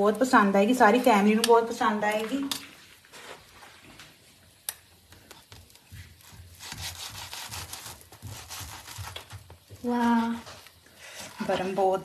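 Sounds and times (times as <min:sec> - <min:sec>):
knife sawing through toasted bread: 0:06.0 - 0:12.0.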